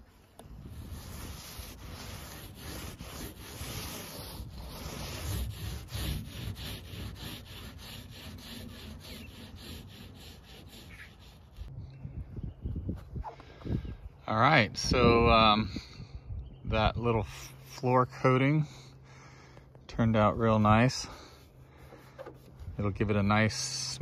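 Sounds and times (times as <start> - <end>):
paint roller rubbing on floor: 0.0 - 11.6.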